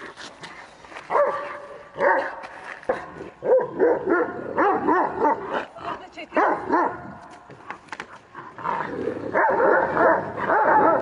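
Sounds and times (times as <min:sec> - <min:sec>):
dog barking: 0:01.1 - 0:02.4, 0:03.4 - 0:05.5, 0:06.4 - 0:07.0, 0:09.4 - 0:11.0.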